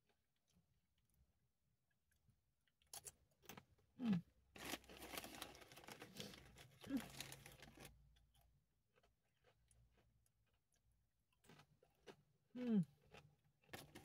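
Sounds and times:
chip bag crinkling: 4.6s - 8.1s.

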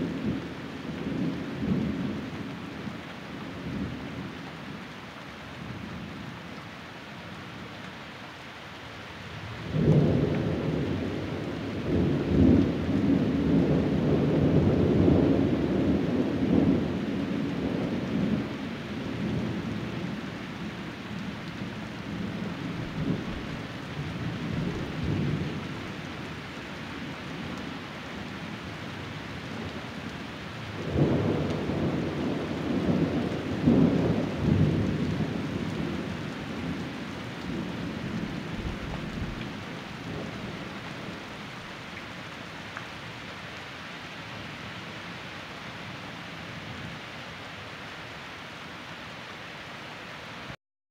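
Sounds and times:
steady rain: 0.0s - 50.6s
thunder rumbling: 21.6s - 25.9s, 30.8s - 41.2s.

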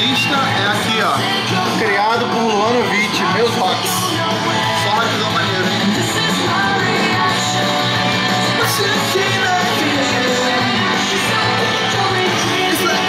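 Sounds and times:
rock song with lead singer: 0.0s - 13.0s.

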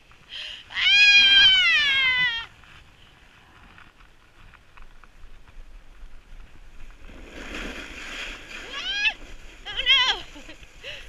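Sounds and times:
woman screaming: 0.7s - 2.5s, 8.6s - 10.3s.

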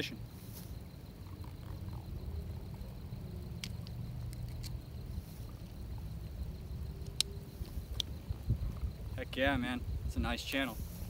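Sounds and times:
fishing line clicks: 3.6s - 4.8s.

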